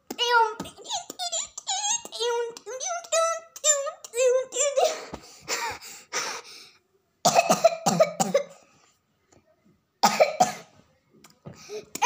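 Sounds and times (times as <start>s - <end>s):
child coughing: 4.1s - 5.8s, 7.3s - 8.6s, 10.0s - 10.8s.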